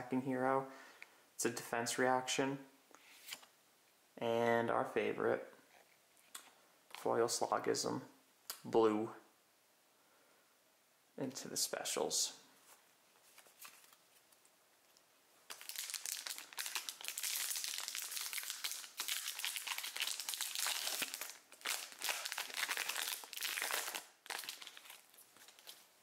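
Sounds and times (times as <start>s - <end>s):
foil wrapper crinkling: 15.5s - 25.9s.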